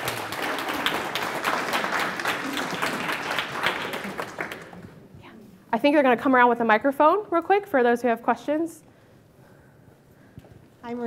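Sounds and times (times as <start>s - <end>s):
audience applauding: 0.0s - 5.0s.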